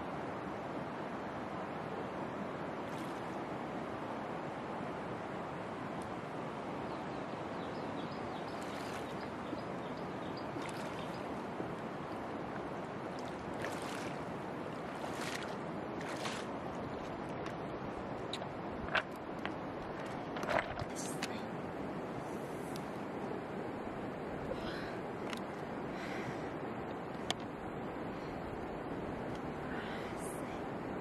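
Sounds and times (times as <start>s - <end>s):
river water running: 0.0s - 31.0s
splashes of wading: 8.5s - 9.8s, 10.4s - 17.6s.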